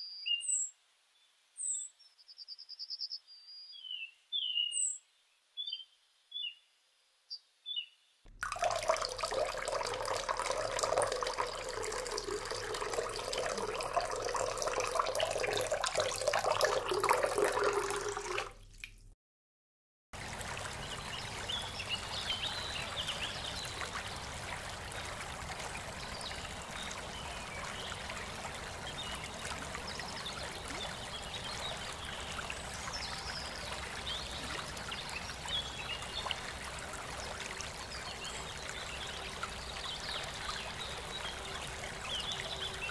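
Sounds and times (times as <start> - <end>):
running water trickling: 8.3 - 19.1, 20.2 - 42.9.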